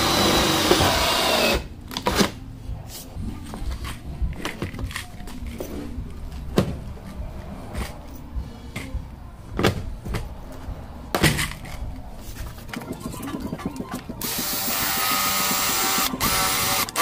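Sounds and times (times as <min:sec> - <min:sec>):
high-pitched power tool: 0:14.2 - 0:17.0.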